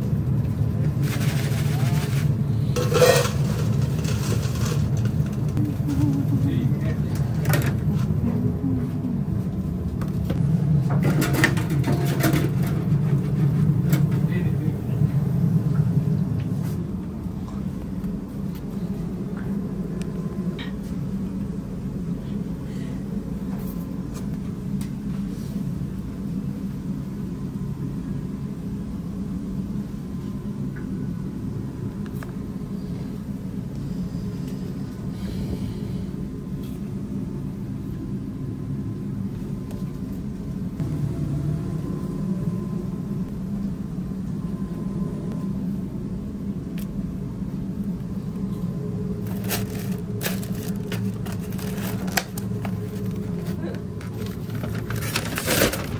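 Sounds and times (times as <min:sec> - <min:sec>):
kitchen equipment rumbling: 0:00.9 - 0:08.3, 0:10.8 - 0:14.4, 0:49.2 - 0:55.9.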